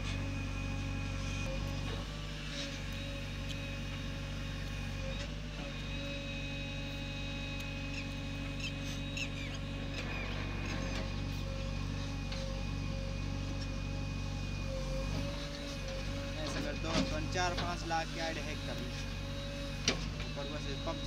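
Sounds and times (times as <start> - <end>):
diesel engine running under load: 0.0 - 21.0
backhoe dumping soil: 15.1 - 18.5.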